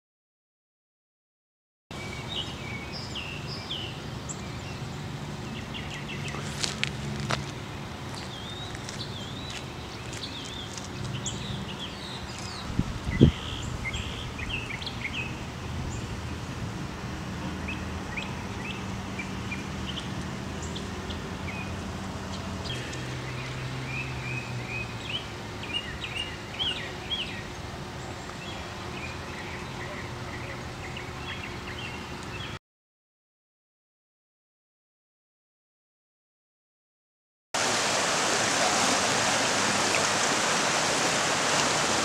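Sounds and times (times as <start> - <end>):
songbirds chirping and singing: 17.6 - 32.6.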